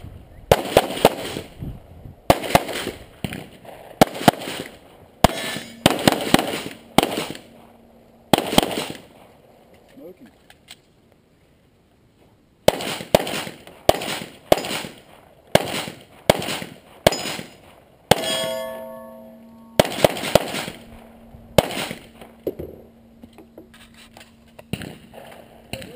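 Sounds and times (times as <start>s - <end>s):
steel target ringing: 5.2s - 8.0s, 18.1s - 23.3s
handgun shots with echo: 19.8s - 20.9s.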